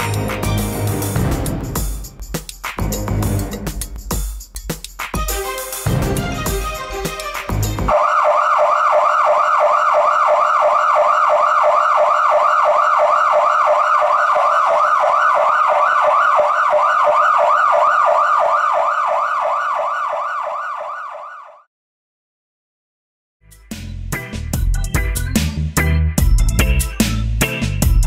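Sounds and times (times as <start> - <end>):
siren yelping: 7.9 - 21.7.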